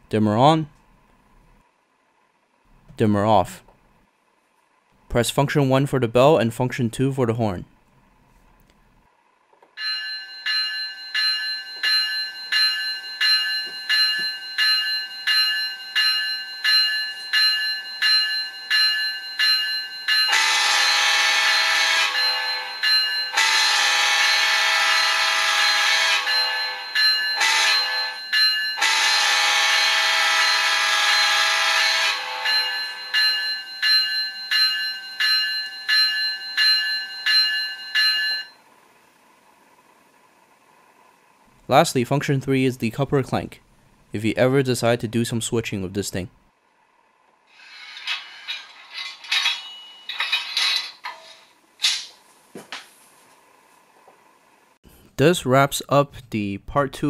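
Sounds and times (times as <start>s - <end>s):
locomotive bell ringing: 9.8s - 38.7s, 47.7s - 51.4s
locomotive horn blasts: 20.3s - 22.6s, 23.4s - 26.8s, 27.4s - 28.2s, 28.8s - 32.5s.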